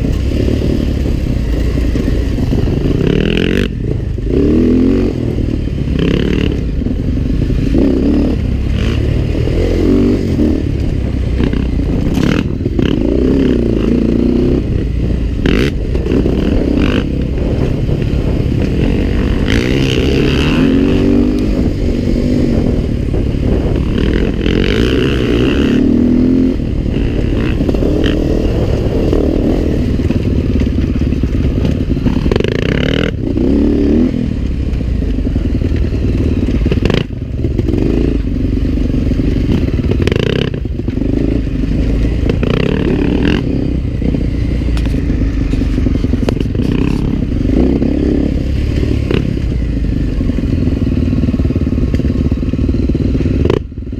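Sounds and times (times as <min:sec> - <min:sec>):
dirt bike engine revving: 0:00.0 - 0:53.9.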